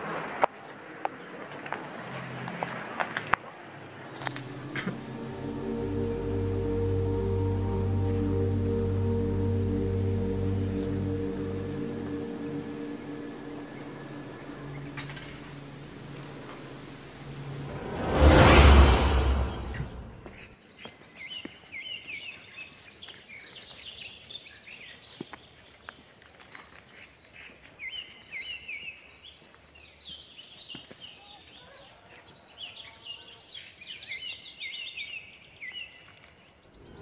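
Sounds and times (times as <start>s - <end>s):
whoosh: 3.9s - 20.5s.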